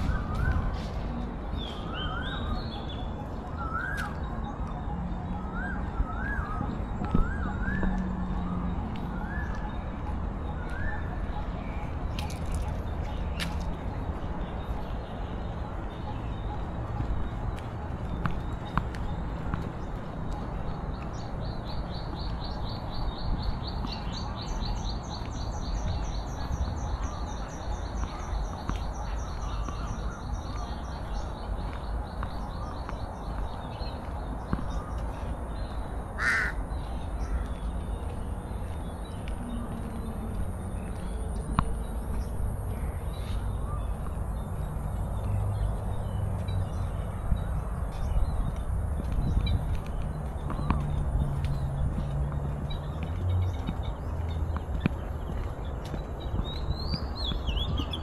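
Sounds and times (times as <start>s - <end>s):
harsh caw-like bird call: 36.2s - 36.6s.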